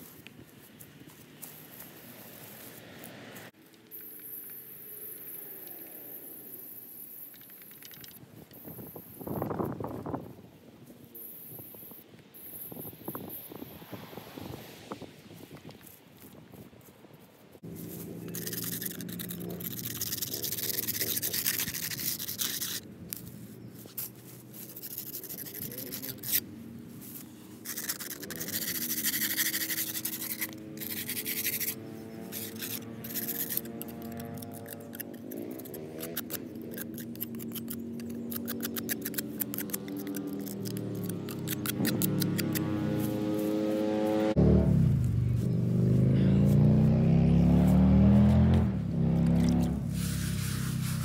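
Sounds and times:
rubbing and scraping: 17.6s - 43.9s, 49.3s - 51.0s.

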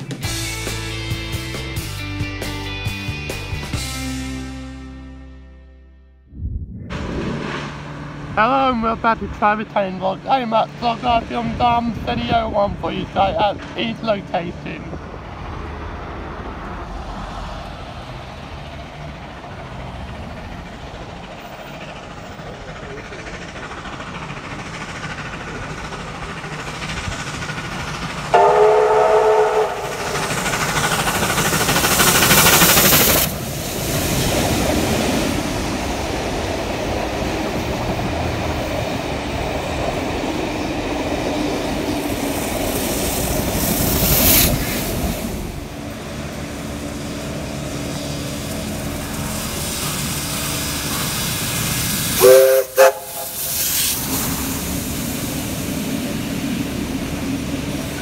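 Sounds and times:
train running rumble and hiss: 0.0s - 5.0s, 6.9s - 58.0s
train whistle blasts: 28.3s - 30.2s, 52.2s - 53.8s.

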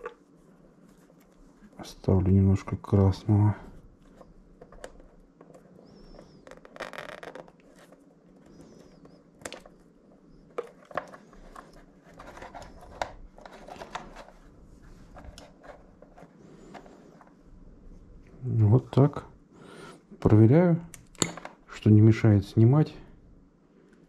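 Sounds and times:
wires rustling: 2.9s - 17.4s.

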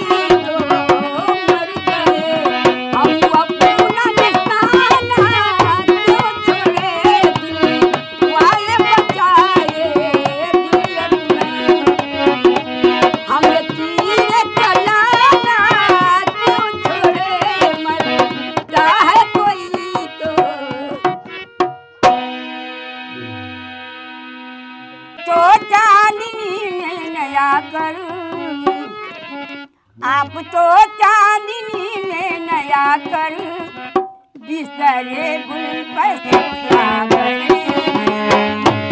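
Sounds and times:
elderly woman singing: 0.0s - 12.1s, 13.2s - 21.1s, 25.2s - 28.9s, 30.0s - 38.7s
hand drum playing: 0.0s - 22.4s, 33.9s - 34.2s, 36.3s - 38.9s.

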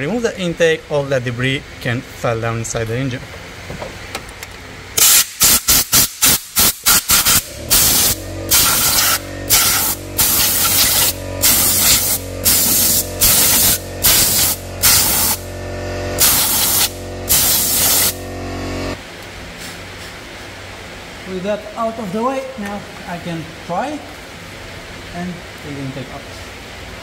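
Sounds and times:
compressed air blasts: 5.0s - 20.2s.

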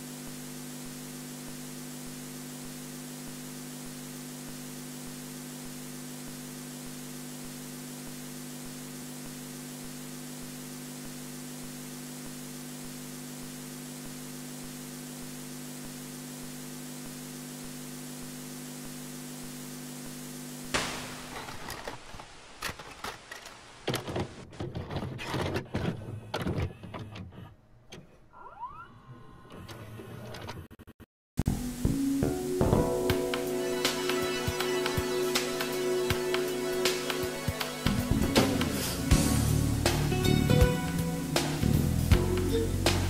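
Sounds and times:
low electrical hum: 0.0s - 24.5s, 31.5s - 43.0s
video tape hiss: 0.0s - 24.5s, 31.4s - 43.0s
crackling static and clicks: 0.9s - 27.5s.

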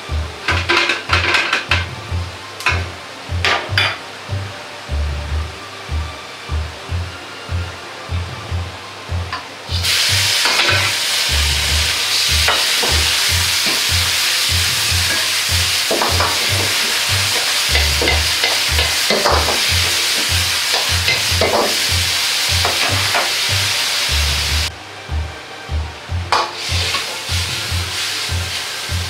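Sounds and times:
loud sizzle in a wok: 0.0s - 24.8s, 26.3s - 29.0s
metal ladle scraping wok: 9.7s - 22.0s.

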